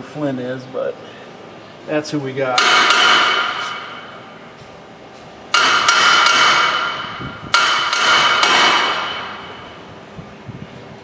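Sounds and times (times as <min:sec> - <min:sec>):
hammer blows on steel: 0:05.5 - 0:09.7.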